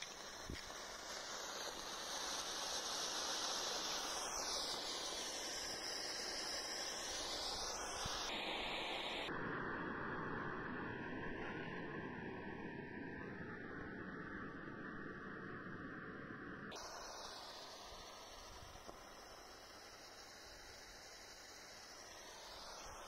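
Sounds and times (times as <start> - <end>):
smoke stick hissing: 0.0 - 9.3, 16.7 - 23.0.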